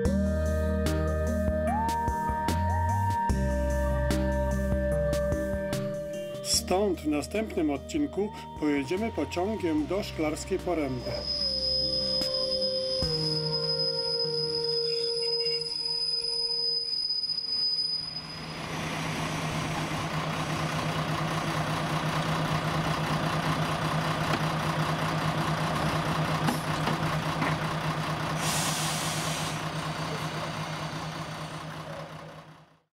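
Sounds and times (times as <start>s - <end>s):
diesel engine idling: 3.3s - 13.5s, 18.2s - 32.9s
compressed air hiss: 28.4s - 29.6s.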